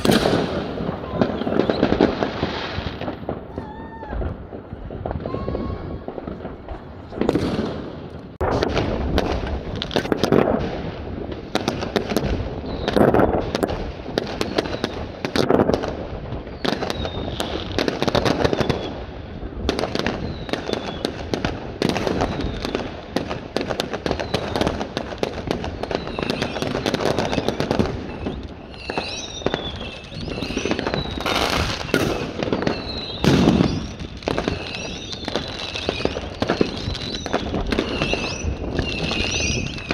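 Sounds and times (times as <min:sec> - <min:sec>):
falling firework whistles: 0:00.0 - 0:06.6, 0:12.6 - 0:13.6, 0:14.2 - 0:15.1, 0:16.4 - 0:21.2, 0:21.9 - 0:22.9, 0:24.0 - 0:24.8, 0:25.8 - 0:39.9
fireworks bangs and crackling: 0:00.0 - 0:39.9.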